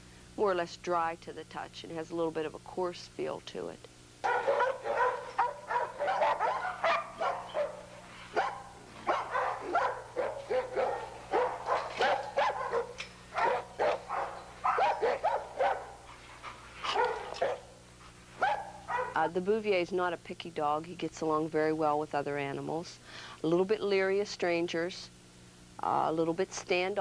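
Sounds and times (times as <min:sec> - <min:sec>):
dog barking: 0:04.2 - 0:16.1, 0:16.8 - 0:17.8, 0:18.4 - 0:19.2.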